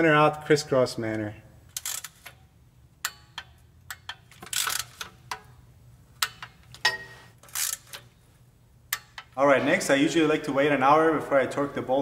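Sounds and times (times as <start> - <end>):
torque wrench ratcheting and clicking: 1.7 - 2.4, 3.0 - 5.5, 7.4 - 8.1.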